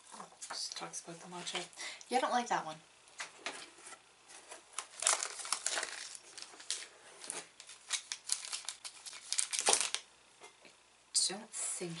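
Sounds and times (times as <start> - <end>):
snack wrapper crinkling: 4.8 - 10.1.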